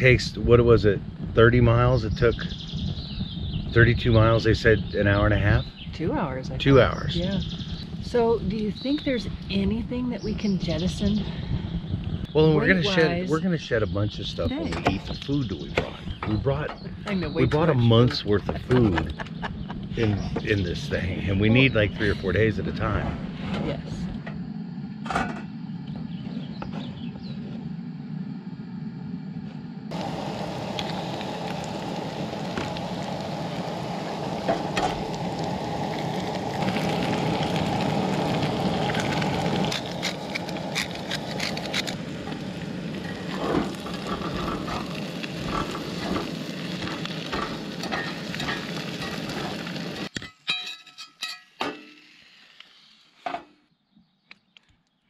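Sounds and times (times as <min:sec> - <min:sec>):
food sizzling in a skillet: 0:29.9 - 0:50.1, 0:51.2 - 0:53.2.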